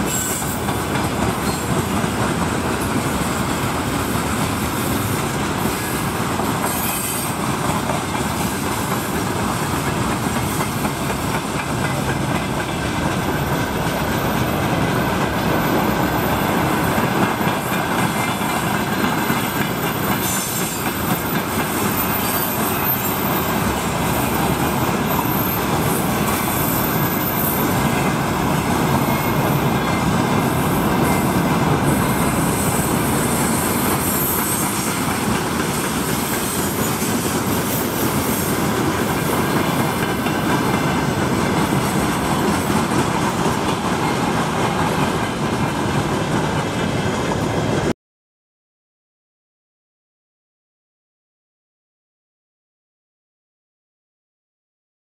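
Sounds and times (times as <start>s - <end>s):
high wheel squeal: 0.0s - 0.6s, 5.6s - 7.4s, 20.0s - 24.5s, 32.0s - 38.5s
train wheels rumbling on rails: 0.0s - 47.9s.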